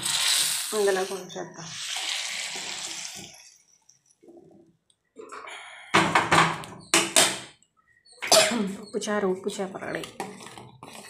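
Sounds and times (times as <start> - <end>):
liquid pouring from pot: 1.7 - 4.0.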